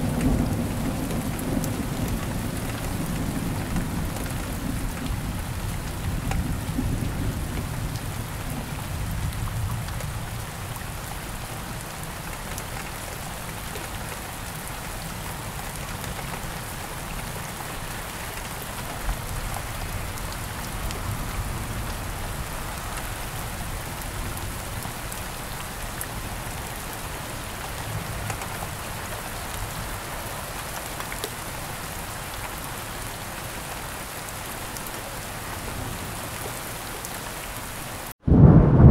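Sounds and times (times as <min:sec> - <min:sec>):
low rumble: 0:38.3 - 0:38.9.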